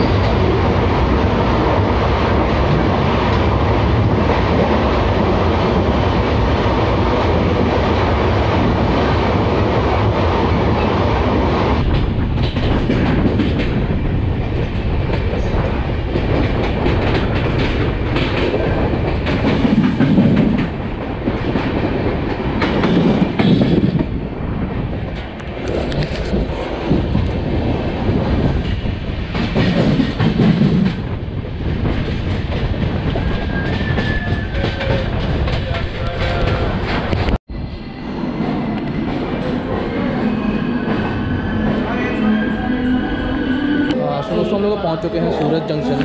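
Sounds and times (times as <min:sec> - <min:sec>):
train wheels clattering on rails: 0:00.0 - 0:37.4.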